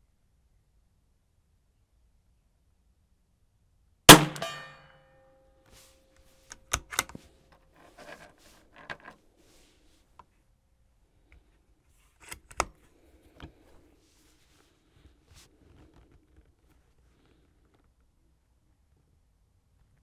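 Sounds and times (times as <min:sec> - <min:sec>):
rifle shot: 0:04.1 - 0:04.8
rifle handling and loading: 0:06.4 - 0:09.2
rifle bolt clicks: 0:06.5 - 0:07.2.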